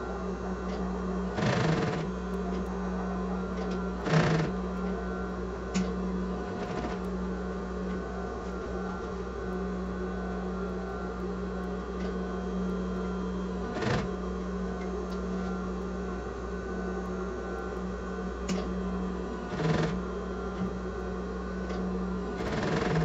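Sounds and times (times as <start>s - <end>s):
sewing machine motor running: 0.7s - 2.6s, 3.6s - 5.1s, 6.4s - 7.1s, 13.6s - 14.2s, 19.5s - 20.8s, 22.3s - 23.0s.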